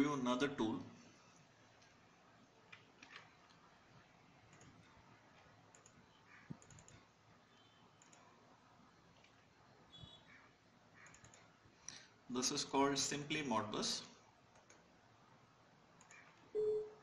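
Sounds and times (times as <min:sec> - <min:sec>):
computer mouse clicks: 0:02.7 - 0:03.6, 0:04.4 - 0:07.2, 0:08.0 - 0:08.4, 0:11.0 - 0:12.0, 0:14.5 - 0:14.9, 0:16.0 - 0:16.4.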